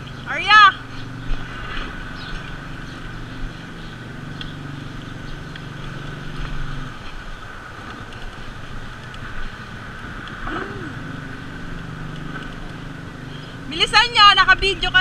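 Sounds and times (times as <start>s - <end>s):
road and wind noise: 0.0s - 15.0s
small motorcycle engine passing: 0.0s - 15.0s.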